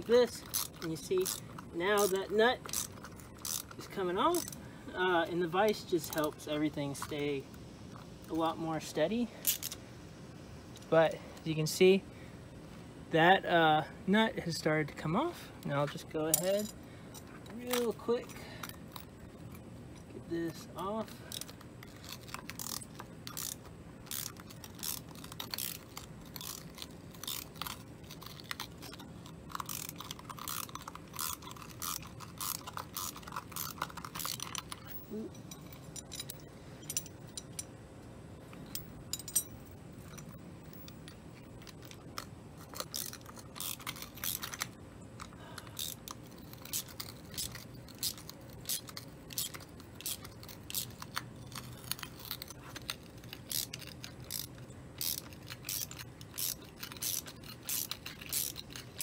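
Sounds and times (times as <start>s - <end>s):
ratchet wrench clicking: 0.3s - 4.6s, 21.2s - 37.7s, 38.6s - 59.0s.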